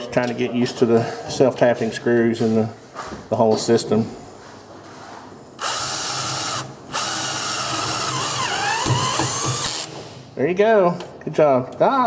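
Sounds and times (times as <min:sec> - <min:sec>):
cordless drill driving screw into steel: 0:05.6 - 0:10.0.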